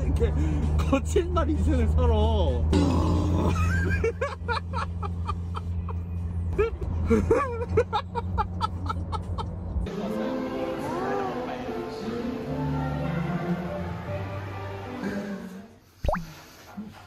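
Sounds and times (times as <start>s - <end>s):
car cabin road noise: 3.4s - 9.9s
people laughing: 6.6s - 9.6s
background music: 9.9s - 15.8s.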